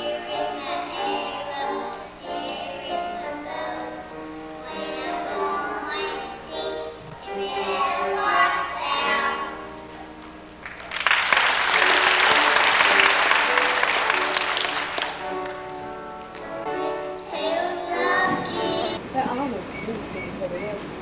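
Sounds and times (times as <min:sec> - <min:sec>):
children singing: 0:00.0 - 0:09.7, 0:16.4 - 0:19.0
music: 0:00.0 - 0:19.0
audience applause: 0:10.6 - 0:15.8.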